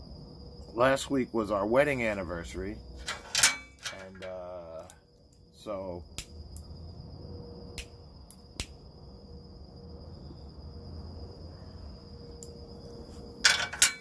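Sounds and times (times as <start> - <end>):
crickets trilling: 0.0 - 14.0
rattling from lighting a pipe: 3.0 - 5.0, 13.4 - 14.0.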